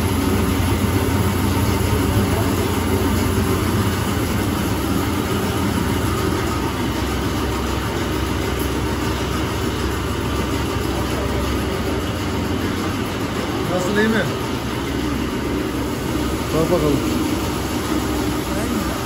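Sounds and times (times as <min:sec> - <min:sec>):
electric motor hum: 0:00.0 - 0:19.0.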